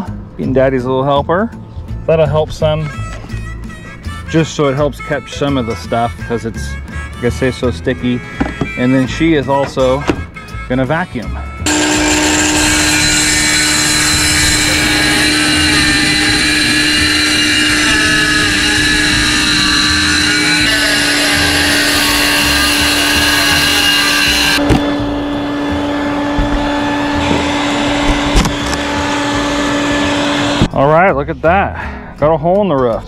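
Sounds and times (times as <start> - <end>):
circular saw cutting: 11.7 - 30.7
shop vacuum running: 11.7 - 30.7.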